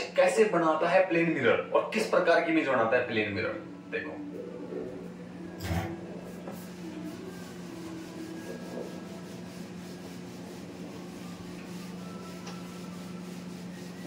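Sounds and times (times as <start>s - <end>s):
steady low hum: 1.3s - 14.0s
eraser rubbing on whiteboard: 7.4s - 14.0s.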